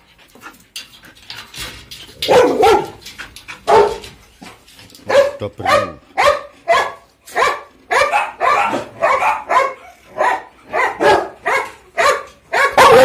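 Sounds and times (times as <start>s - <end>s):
dog barking: 2.3s - 3.0s, 3.7s - 4.0s, 5.0s - 13.0s.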